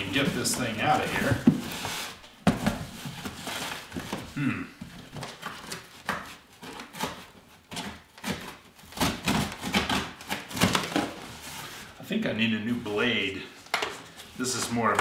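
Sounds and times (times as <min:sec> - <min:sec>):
cardboard rustling: 0:00.0 - 0:12.0.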